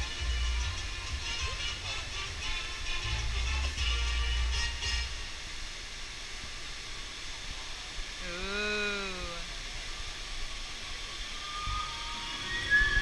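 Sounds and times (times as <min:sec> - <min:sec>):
fountain water spraying: 0:00.0 - 0:13.0
water cascading into pond: 0:00.0 - 0:13.0
drawn-out voice: 0:08.2 - 0:09.6.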